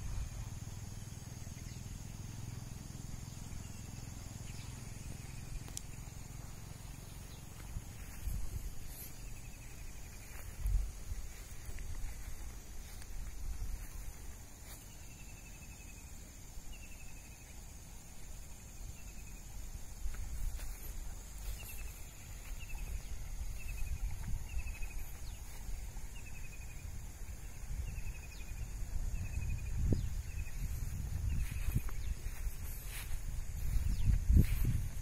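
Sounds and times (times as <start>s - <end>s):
high-pitched insect drone: 0.0s - 35.0s
low wind rumble: 7.4s - 14.6s, 18.3s - 35.0s.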